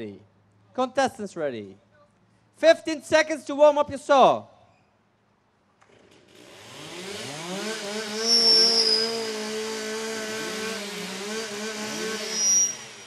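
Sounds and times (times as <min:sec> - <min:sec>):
chainsaws revving: 0:06.0 - 0:13.0.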